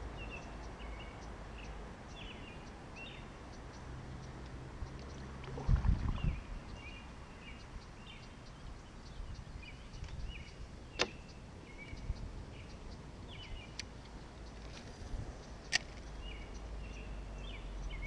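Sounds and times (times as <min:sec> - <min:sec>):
bird chirping: 0:00.0 - 0:18.0
sharp click: 0:11.0 - 0:11.2.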